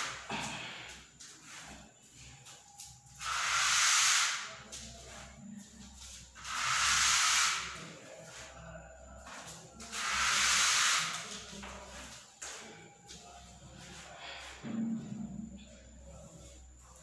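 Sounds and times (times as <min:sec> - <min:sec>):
tool scraping wet paint: 0:03.2 - 0:04.5, 0:06.4 - 0:07.9, 0:09.8 - 0:11.3.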